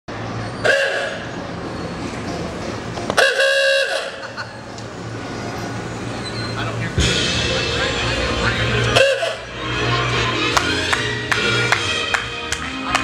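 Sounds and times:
car horn tooting: 0.6 - 1.3, 3.2 - 4.2, 8.9 - 9.5.

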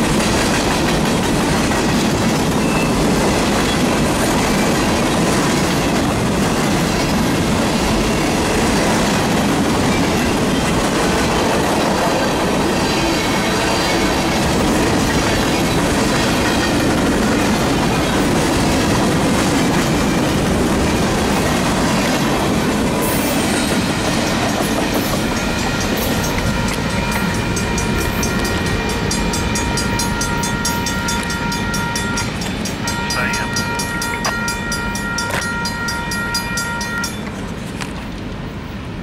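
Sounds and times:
steel wheels rolling on rail: 0.0 - 39.0
grade-crossing bell ringing: 23.2 - 37.6.

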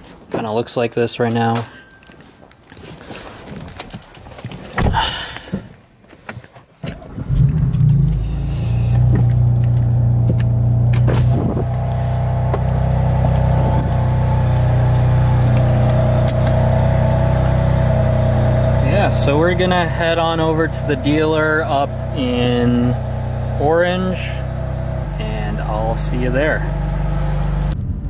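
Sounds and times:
thumps and clicks: 3.5 - 11.8
car engine starting and idling: 6.8 - 27.8.

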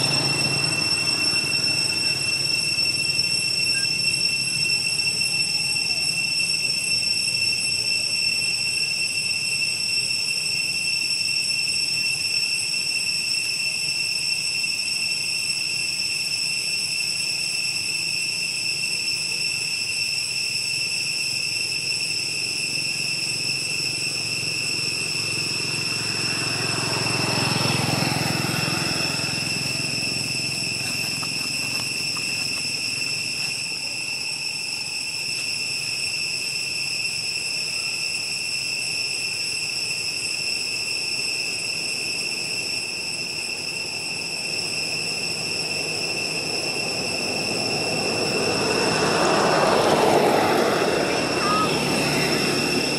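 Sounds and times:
vehicle passing: 0.0 - 2.7, 24.6 - 33.5, 45.9 - 52.9
high-pitched insect drone: 0.0 - 52.9.

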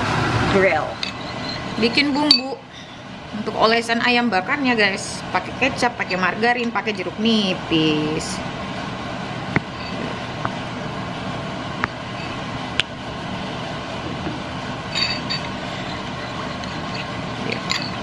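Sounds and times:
metal spoon clinking in ceramic bowl: 1.0 - 2.6, 14.9 - 18.0.

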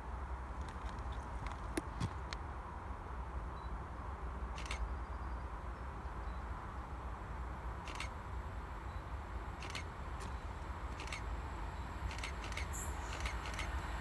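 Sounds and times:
distant locomotive rumble: 5.4 - 14.0
short sharp high clicks: 12.1 - 13.8.

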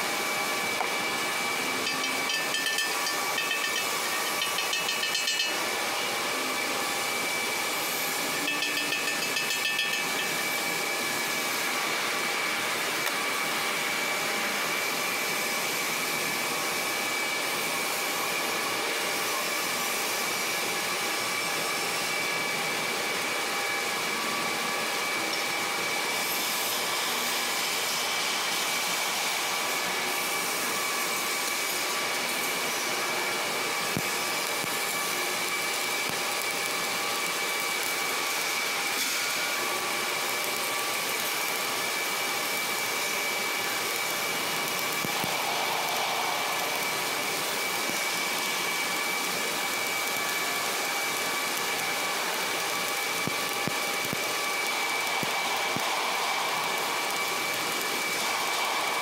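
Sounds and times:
whirring machinery: 0.0 - 59.0
high whine: 43.8 - 50.5.

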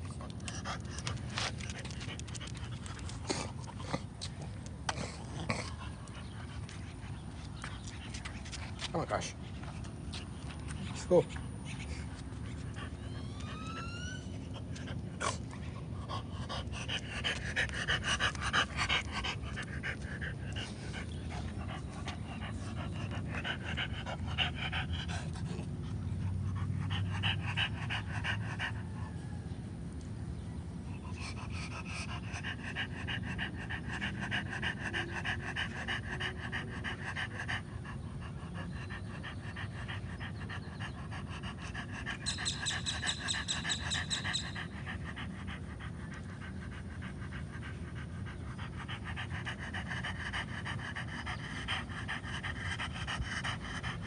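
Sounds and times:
dog panting rapidly: 14.7 - 29.0, 31.0 - 54.0.

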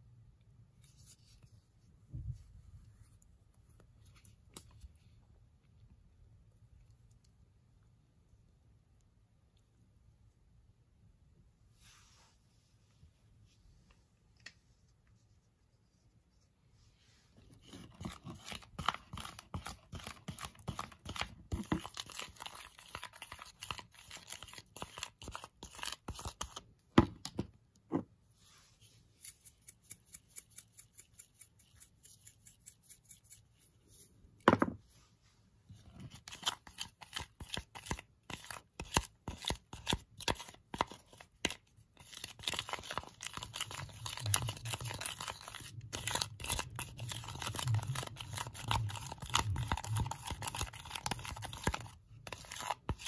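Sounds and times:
spoon stirring sticky slime: 17.4 - 26.8, 29.1 - 34.4, 35.8 - 53.0.

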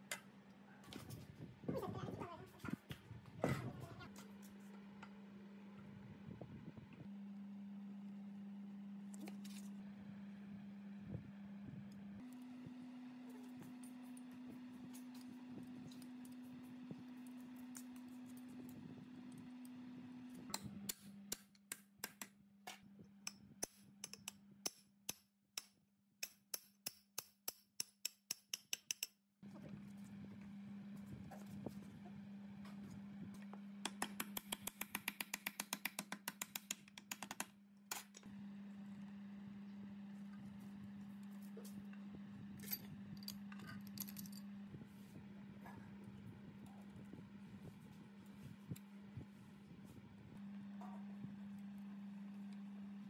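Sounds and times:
metal clicks and taps: 25.1 - 29.2
steady low hum: 37.6 - 53.0.

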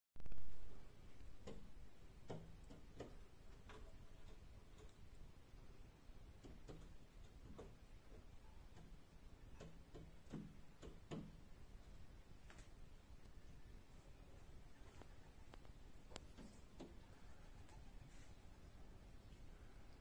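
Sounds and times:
pigeon feet tapping on glass: 1.4 - 5.0, 6.3 - 11.4.

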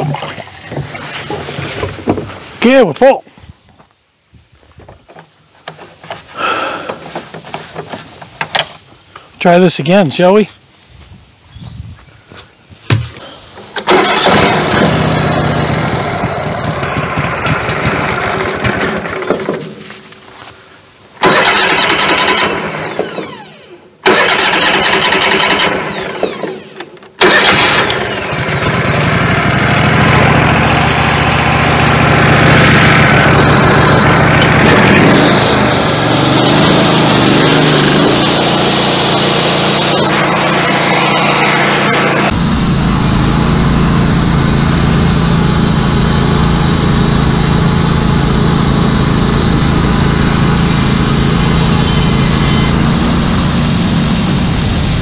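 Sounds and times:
gasoline engine starting and running: 13.0 - 20.2, 21.2 - 55.0.

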